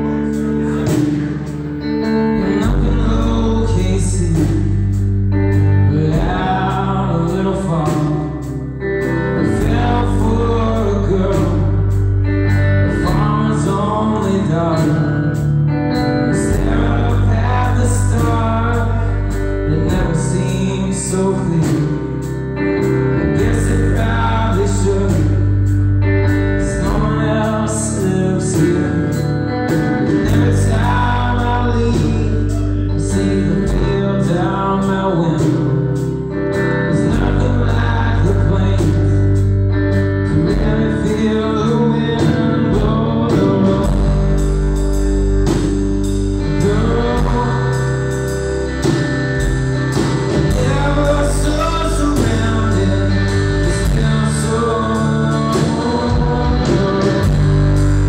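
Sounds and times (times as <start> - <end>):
drum kit beat: 0.0 - 3.5, 42.2 - 58.0
electric guitars: 0.0 - 58.0
man singing: 0.0 - 58.0.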